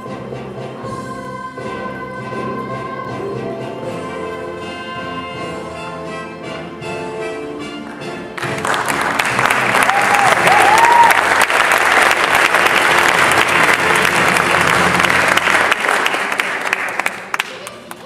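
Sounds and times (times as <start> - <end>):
audience applauding: 8.4 - 18.0
crowd cheering: 8.6 - 18.0.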